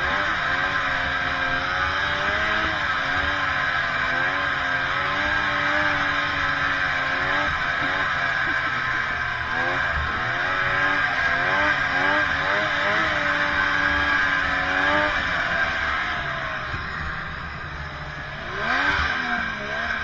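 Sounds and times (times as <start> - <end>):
snowmobile engine running: 0.0 - 20.0.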